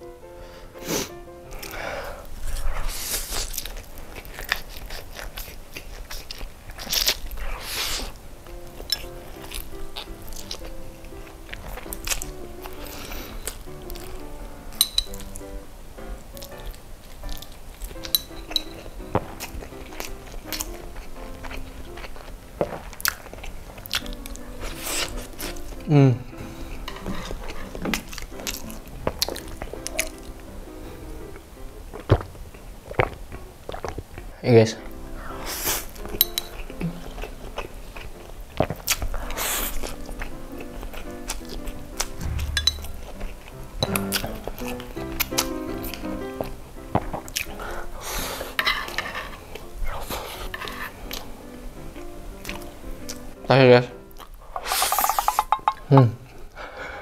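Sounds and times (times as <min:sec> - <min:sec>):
soft background music: 0:00.0 - 0:55.6
wet chewing and mouth smacks: 0:02.9 - 0:15.6, 0:16.3 - 0:25.9, 0:26.7 - 0:30.5, 0:31.2 - 0:48.0, 0:52.0 - 0:53.4, 0:54.1 - 0:55.8
loud noodle slurps: 0:04.5 - 0:08.2, 0:54.6 - 0:55.5
wet mouth clicks: 0:23.0 - 0:24.3, 0:54.2 - 0:55.9.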